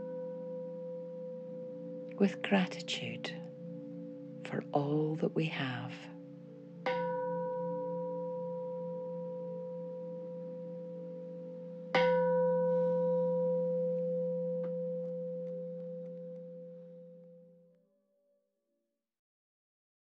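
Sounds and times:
meditation bell ringing: 5.8 - 17.4.

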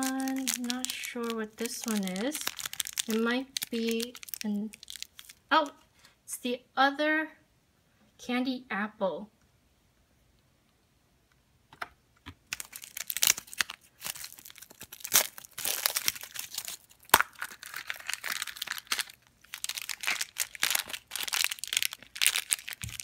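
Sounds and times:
plastic wrapper crinkling and tearing: 0.0 - 5.7, 12.4 - 23.0.

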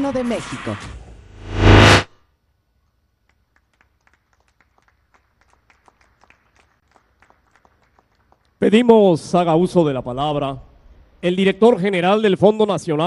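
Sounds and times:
faint hand clapping: 3.2 - 8.6.

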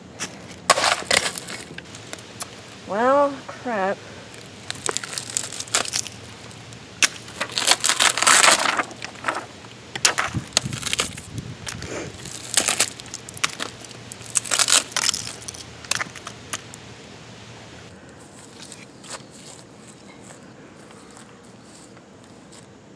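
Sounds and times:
plastic casing cracking and snapping: 7.0 - 9.4, 10.0 - 16.8.

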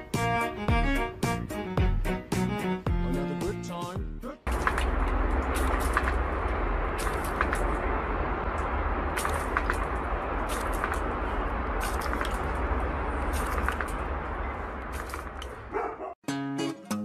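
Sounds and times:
hose spray rushing water: 4.5 - 15.4
plucked guitar music: 16.2 - 17.0.

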